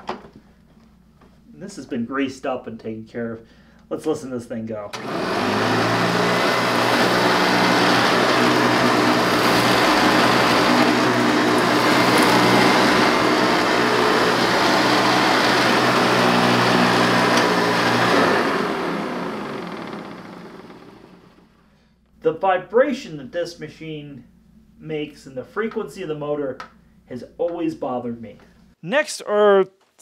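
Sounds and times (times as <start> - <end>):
vacuum cleaner motor hum: 5.0 - 21.6.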